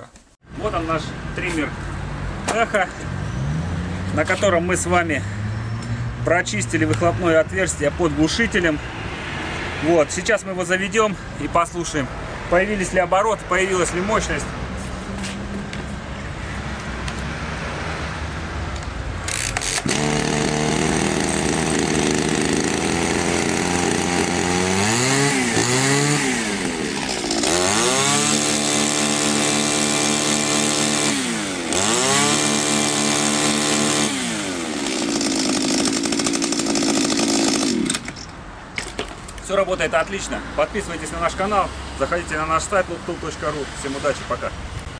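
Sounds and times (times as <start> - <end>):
trimmer engine starting and revving: 19.3 - 38.3.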